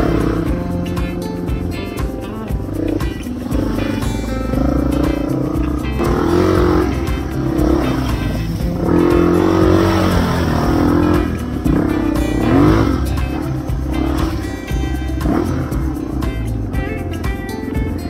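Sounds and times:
background music: 0.0 - 18.0
dirt bike engine revving: 2.8 - 16.4.

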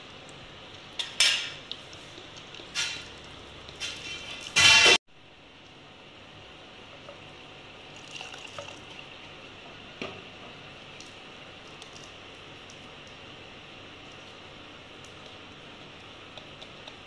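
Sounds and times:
whisk squishing batter: 0.1 - 4.6, 14.0 - 17.0
whisk clicking against bowl: 15.1 - 17.0.

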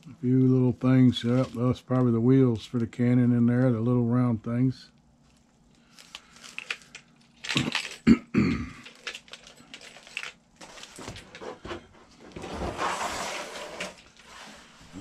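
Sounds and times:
plastic trays crinkling and clicking: 5.8 - 8.0, 8.7 - 11.4.

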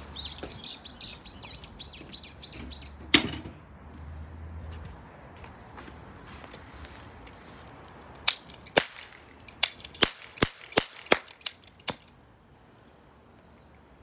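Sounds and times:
toy revolver shots: 8.3 - 12.1.

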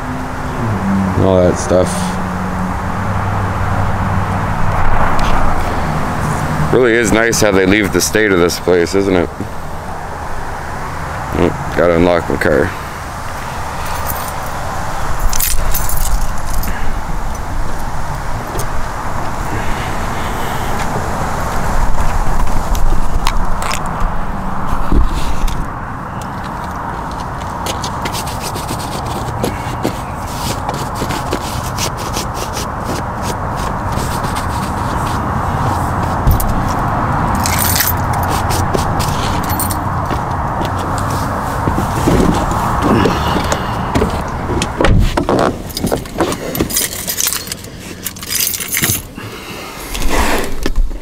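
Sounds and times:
keys jingling: 13.8 - 16.8, 37.3 - 39.9, 45.6 - 49.2
rubbing and scratching: 17.8 - 25.7, 26.3 - 43.0.

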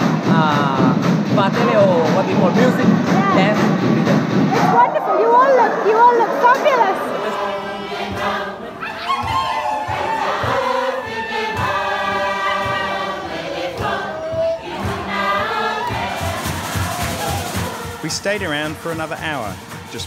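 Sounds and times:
steady low beat: 0.0 - 4.8, 9.3 - 20.0
chorus singing together: 0.0 - 20.0.

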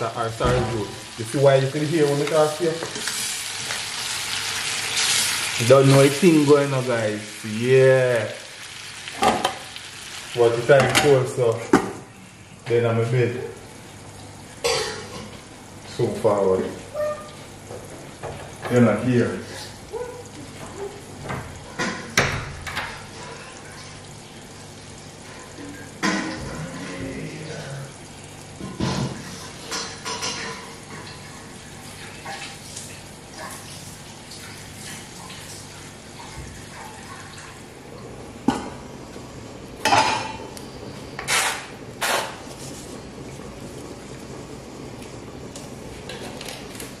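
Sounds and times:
food cooking in covered pot: 0.0 - 47.0
metal pots and lids clanking: 28.6 - 31.1.

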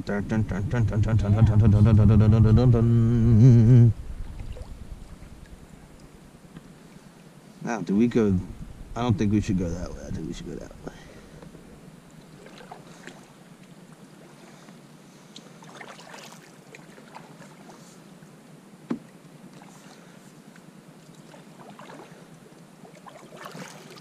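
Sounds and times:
paddles splashing in water: 15.4 - 17.9, 21.1 - 24.0.

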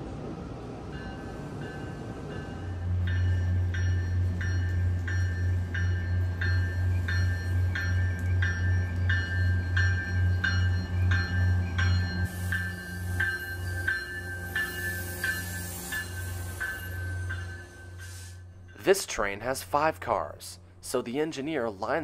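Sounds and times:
low hum from train: 0.0 - 22.0
train warning bell ringing: 0.9 - 19.6.

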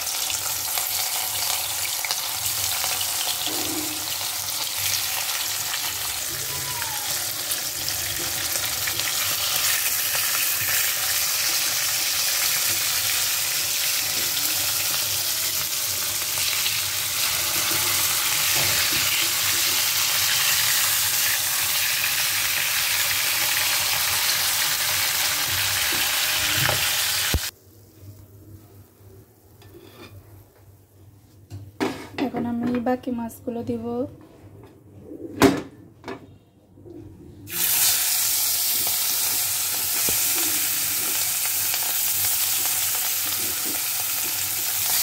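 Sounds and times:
fish sizzling in hot oil: 0.0 - 27.6, 37.5 - 45.0
steel spoon scraping pan: 29.6 - 30.2.

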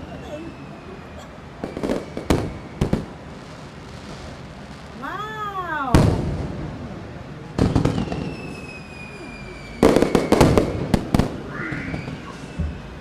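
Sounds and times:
falling whistle: 0.4 - 2.8, 7.9 - 10.6, 11.4 - 13.0
fireworks bangs: 1.5 - 13.0.

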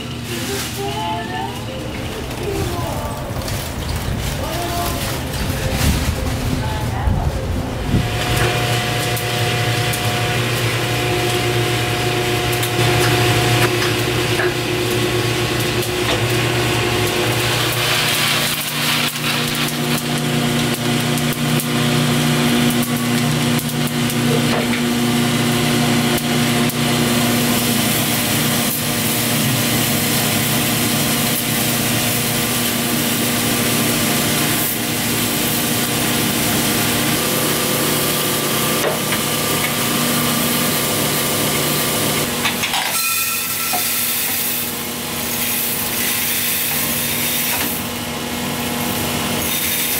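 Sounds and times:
motor and fan hum: 0.0 - 49.9
coffee beans rasping in tray: 17.3 - 21.6, 42.6 - 47.8, 49.4 - 49.9.

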